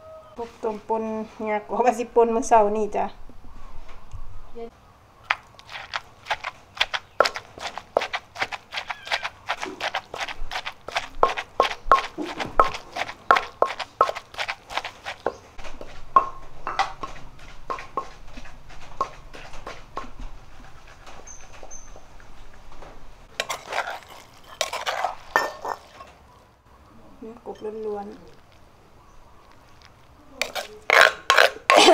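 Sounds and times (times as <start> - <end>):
pestle pounding in mortar: 5.3 - 21.7, 30.4 - 31.9.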